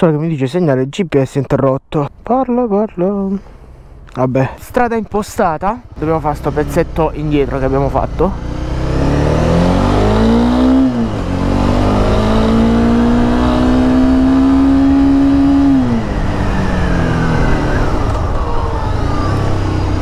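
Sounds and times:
motorcycle engine revving: 5.3 - 20.0.

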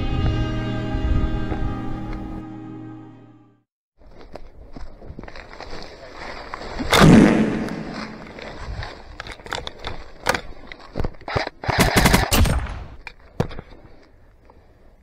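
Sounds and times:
airsoft rifle gunfire bursts: 11.6 - 12.4.

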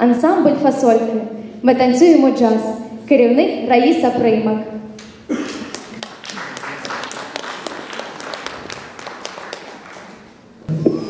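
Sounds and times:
audience applauding: 5.4 - 10.4.

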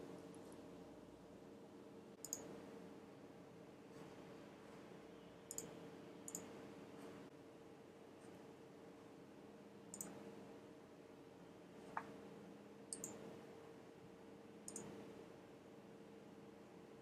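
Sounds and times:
faint electrical hum: 0.0 - 17.0
mouse button clicking: 2.2 - 2.5, 5.5 - 5.7.

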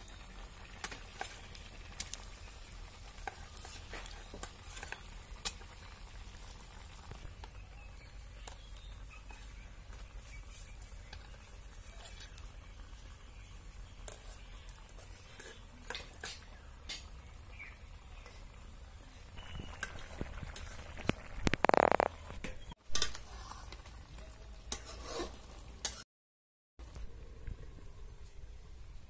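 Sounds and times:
food sizzling in oil: 0.0 - 26.0
metal spatula scraping a pan: 3.1 - 5.7, 9.3 - 12.6, 13.9 - 17.1, 22.9 - 23.9, 24.6 - 26.0.

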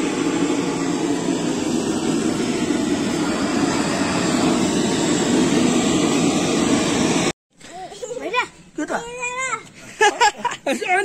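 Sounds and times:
gas blowtorch rushing jet: 0.0 - 7.4.

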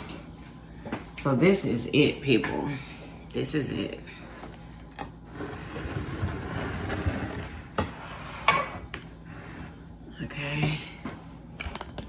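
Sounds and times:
glass dishes clinking: 8.4 - 9.0.

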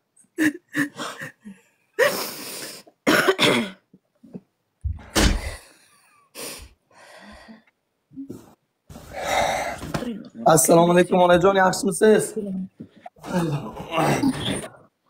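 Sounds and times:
woman weeping: 0.4 - 2.2
woman coughing and clearing throat: 3.0 - 3.9, 13.3 - 14.8.

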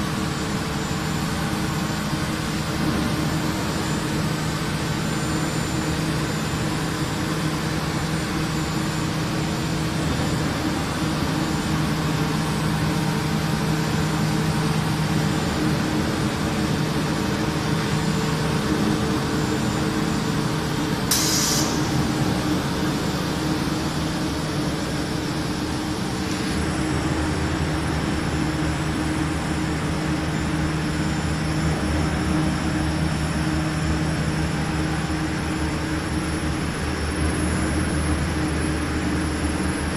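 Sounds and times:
machine drone: 0.0 - 39.9
steady low hum: 0.0 - 39.9
short hiss: 21.1 - 21.8.

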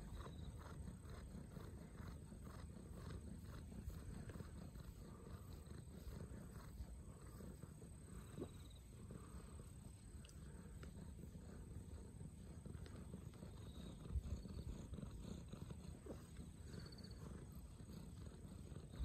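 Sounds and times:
hand rubbing fur: 0.0 - 19.0
kitten purring: 0.0 - 19.0.

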